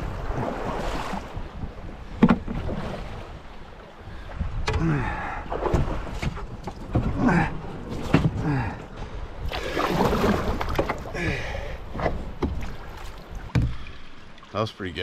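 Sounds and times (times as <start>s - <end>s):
paddle strokes splashing water: 0.0s - 4.3s, 9.4s - 14.6s
sharp knocks: 13.5s - 13.8s.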